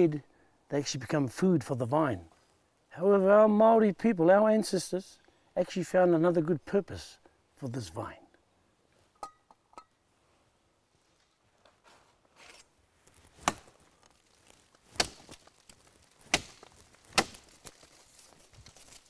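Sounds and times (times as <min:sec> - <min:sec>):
scraping and rustling: 0:11.0 - 0:19.0
knife chopping into vine: 0:13.4 - 0:13.7, 0:14.9 - 0:15.4, 0:16.2 - 0:17.6.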